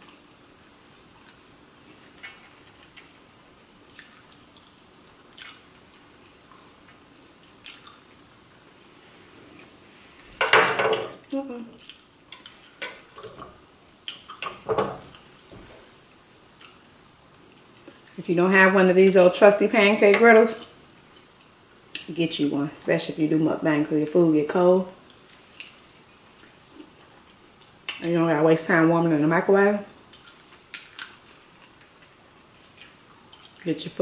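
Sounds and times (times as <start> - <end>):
person chewing wet mouth sounds: 3.9 - 8.2, 30.1 - 33.6.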